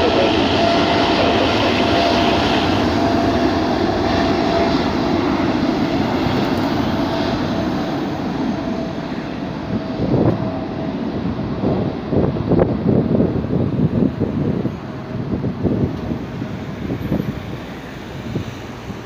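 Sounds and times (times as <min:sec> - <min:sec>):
jet engine roar: 0:00.0 - 0:19.0
jet engine whine: 0:00.0 - 0:19.0
wind bumps on microphone: 0:11.4 - 0:19.0.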